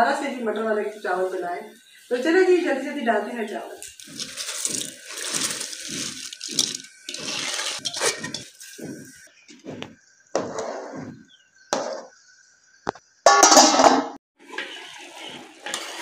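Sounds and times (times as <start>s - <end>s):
water splashing and sloshing: 3.7s - 12.1s, 13.5s - 16.0s.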